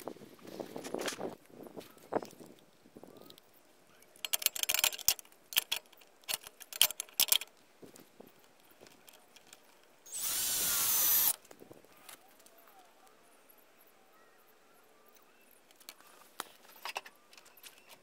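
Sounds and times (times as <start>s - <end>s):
small metal parts clinking: 4.2s - 7.5s
cordless drill running: 10.1s - 11.4s.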